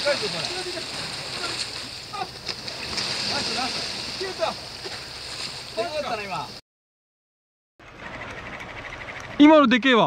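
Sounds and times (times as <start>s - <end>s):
outdoor background hiss: 0.0s - 6.6s.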